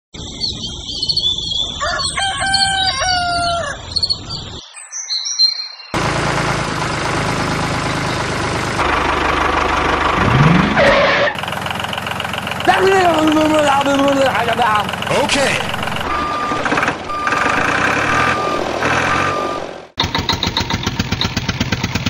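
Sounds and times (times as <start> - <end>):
birds chirping: 0.2 - 6.0, 7.4 - 8.8
rooster crowing: 1.7 - 4.0.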